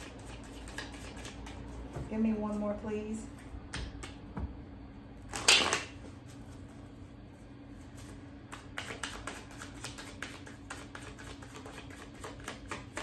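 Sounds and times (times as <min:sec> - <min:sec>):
faint steady hum: 0:00.0 - 0:13.0
cards shuffling: 0:00.1 - 0:01.7, 0:08.5 - 0:13.0.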